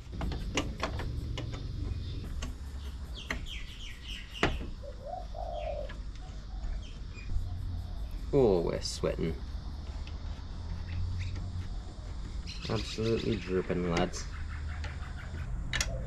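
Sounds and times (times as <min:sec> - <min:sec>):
hands clicking and knocking on engine: 0:00.0 - 0:03.7, 0:13.6 - 0:16.0
dove cooing: 0:04.7 - 0:08.1, 0:14.4 - 0:16.0.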